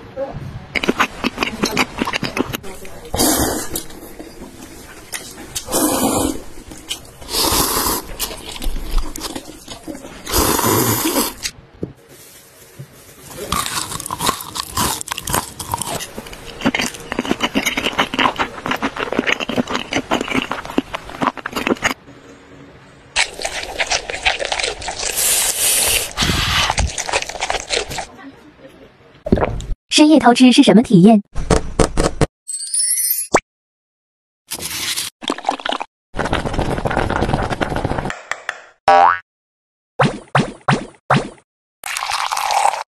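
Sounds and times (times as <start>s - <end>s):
chewing a snack: 0.8s - 2.6s, 6.6s - 11.5s, 13.4s - 22.0s, 23.2s - 28.1s
noodles being eaten: 5.0s - 11.5s, 13.3s - 22.0s, 23.2s - 28.1s
crisp crunching of fried food: 12.2s - 22.0s, 23.2s - 28.1s, 34.5s - 38.0s.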